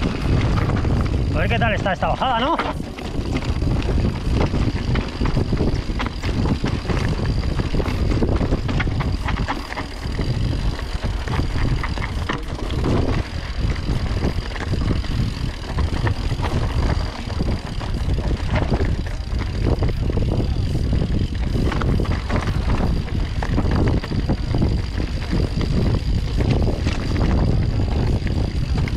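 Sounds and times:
tyres rolling over stones: 0.0 - 20.6
bike rattling and knocking: 0.0 - 28.9
wind rumble on microphone: 0.0 - 28.9.

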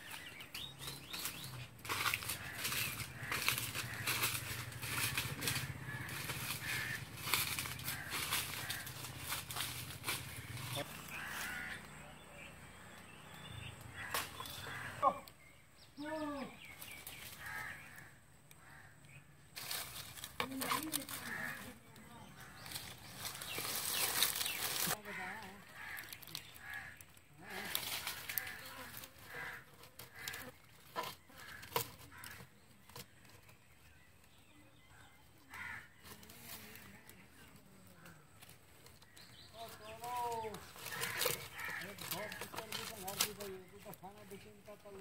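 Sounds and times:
crow cawing: 1.9 - 12.0, 13.9 - 15.3, 17.3 - 19.0, 20.7 - 30.6, 31.4 - 32.5, 34.9 - 36.9, 39.8 - 43.2.

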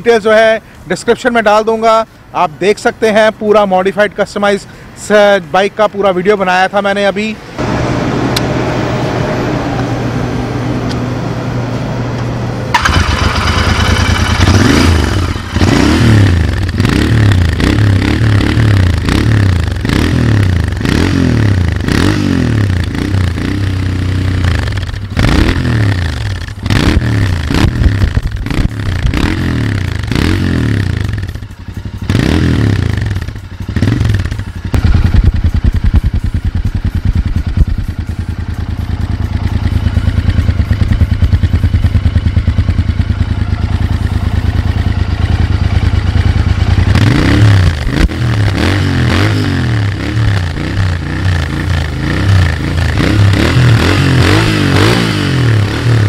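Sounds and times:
motorcycle engine idling: 12.7 - 19.9, 22.7 - 48.6, 49.8 - 53.5
motorcycle engine revving: 12.7 - 56.0.

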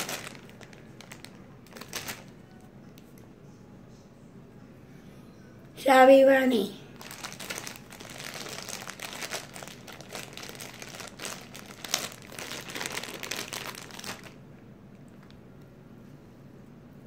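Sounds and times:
plastic bag crinkling: 0.0 - 2.4, 6.9 - 14.4
sharp plastic crackle: 0.0 - 2.4, 6.9 - 14.4.

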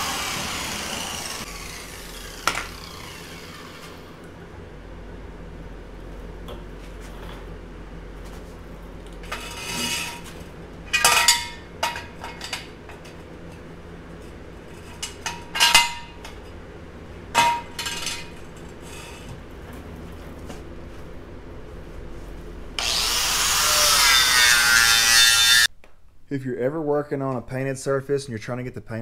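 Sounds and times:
low steady hum: 0.0 - 29.0
metal tools clanking: 9.2 - 13.7, 14.7 - 16.6, 17.4 - 19.3.

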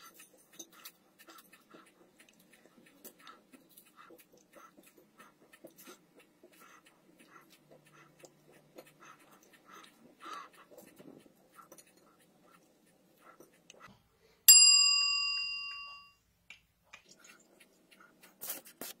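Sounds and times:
bell-like notification ding: 14.5 - 16.1.

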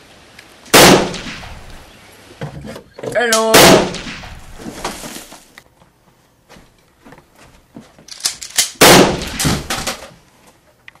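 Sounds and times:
gunshots: 0.7 - 1.8, 3.5 - 4.6, 8.8 - 10.0.

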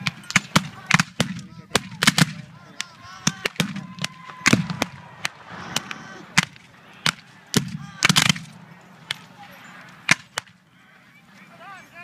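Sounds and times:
musket fire cracks: 0.0 - 9.2.

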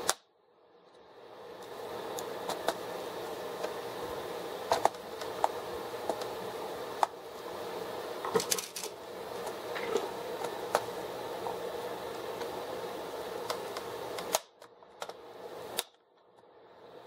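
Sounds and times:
steady background hum: 0.0 - 17.0
plastic clicks and snaps: 13.4 - 16.4.

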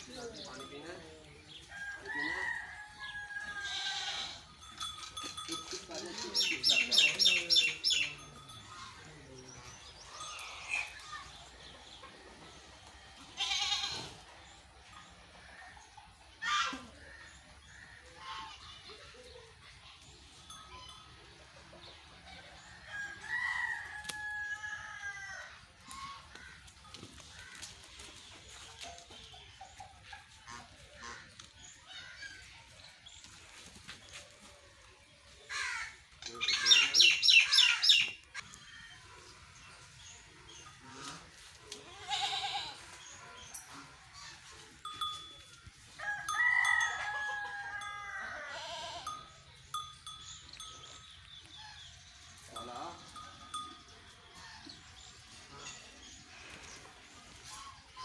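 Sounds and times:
farm animal call: 1.6 - 11.3, 13.2 - 14.3, 16.4 - 19.2, 35.5 - 58.0
rooster crowing: 1.7 - 4.0, 46.0 - 49.0
high tinkling notes: 3.6 - 11.7, 43.2 - 51.5, 52.1 - 54.9.

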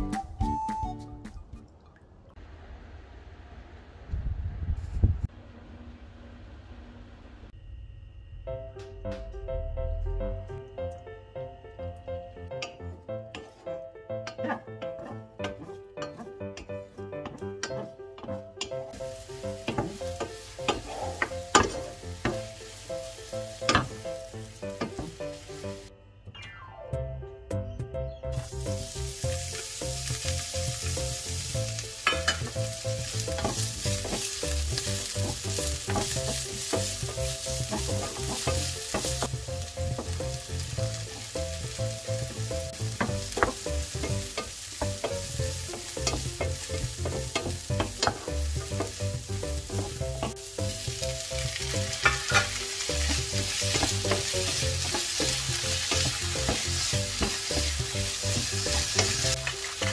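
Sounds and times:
wooden spatula knocking pan: 12.6 - 22.6, 24.7 - 25.3, 32.0 - 59.9
vegetables sizzling in oil: 18.8 - 25.9, 28.4 - 59.9.

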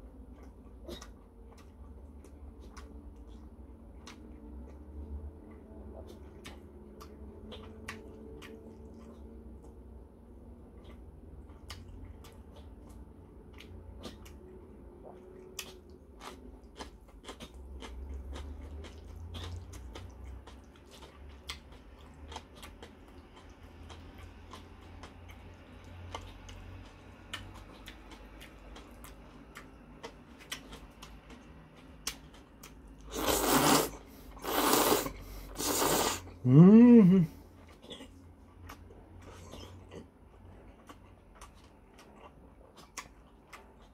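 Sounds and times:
mouth clicks and smacks chewing: 0.0 - 9.8, 10.6 - 33.8, 37.6 - 43.9
noodle slurping: 33.1 - 36.3.

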